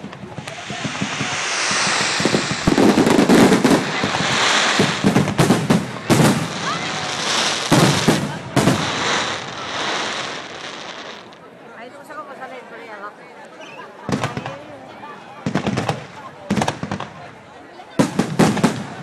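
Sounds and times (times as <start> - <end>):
fireworks bangs: 0.0 - 11.4, 15.4 - 17.3, 18.0 - 19.0
fireworks crackling: 0.0 - 11.5.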